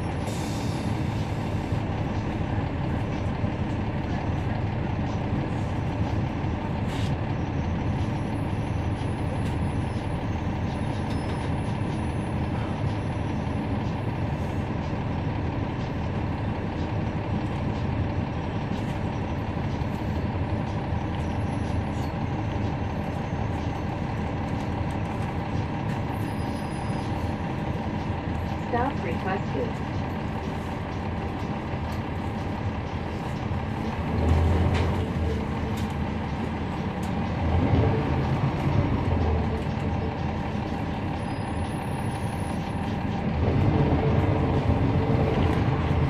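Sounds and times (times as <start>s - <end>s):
bus diesel engine drone: 0.0s - 46.0s.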